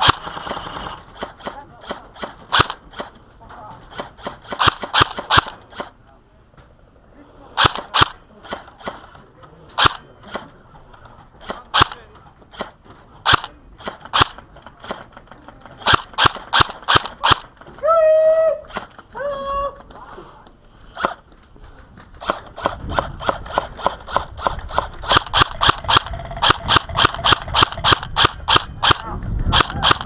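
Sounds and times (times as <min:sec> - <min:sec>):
airsoft gun shots: 0:00.0 - 0:03.2, 0:03.9 - 0:05.9, 0:07.6 - 0:09.0, 0:09.8 - 0:10.5, 0:11.4 - 0:15.1, 0:15.8 - 0:17.7, 0:22.2 - 0:30.0.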